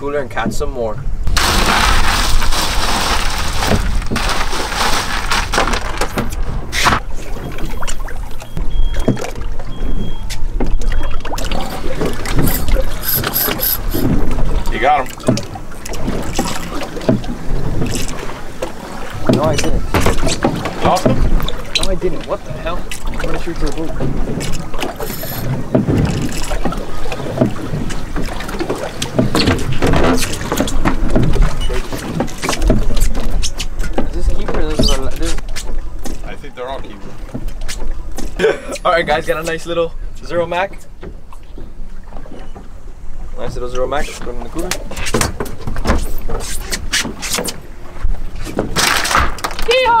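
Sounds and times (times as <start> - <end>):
ice and water sloshing in a cooler: 1.3 - 10.1, 13.9 - 38.0, 44.0 - 50.0
wind buffeting microphone: 9.4 - 36.0.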